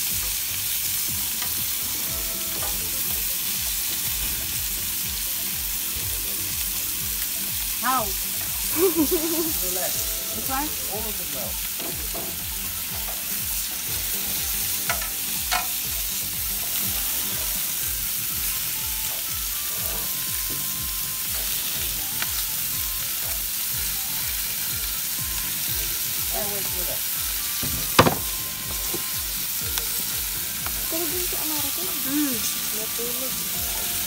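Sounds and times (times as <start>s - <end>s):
meat sizzling on a grill: 0.0s - 34.0s
metal tongs clicking on grill: 14.8s - 15.8s.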